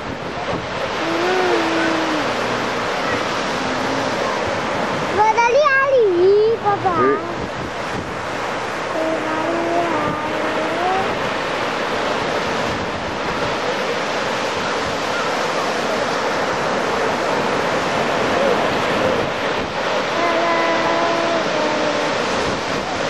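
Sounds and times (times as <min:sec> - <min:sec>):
sea waves breaking on shore: 0:00.0 - 0:23.0
wind on microphone: 0:00.0 - 0:23.0
child's voice: 0:01.0 - 0:02.3, 0:05.1 - 0:07.4, 0:08.9 - 0:11.2, 0:20.2 - 0:22.1.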